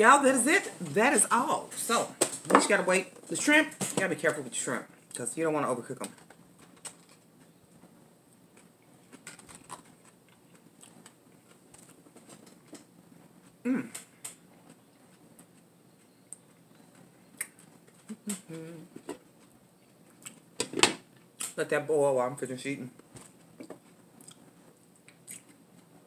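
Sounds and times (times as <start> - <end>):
person humming: 13.7 - 14.0, 18.1 - 19.0.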